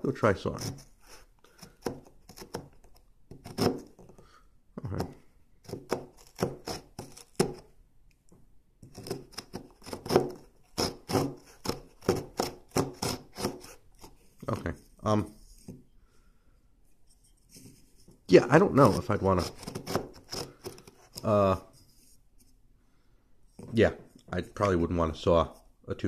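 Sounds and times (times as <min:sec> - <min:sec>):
hand saw sawing wood: 0:03.3 - 0:03.9, 0:05.7 - 0:07.6, 0:08.9 - 0:14.2, 0:18.4 - 0:21.6.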